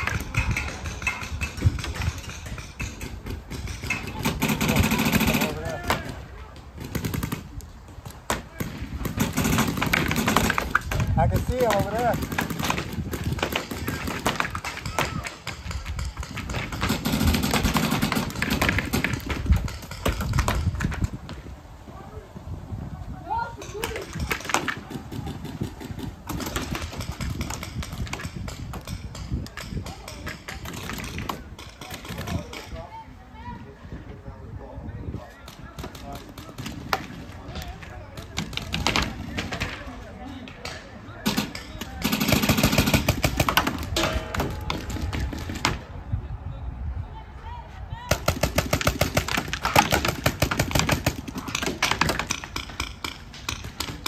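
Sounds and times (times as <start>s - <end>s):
paintball markers firing: 0.0s - 21.2s, 23.6s - 32.8s, 48.1s - 54.0s.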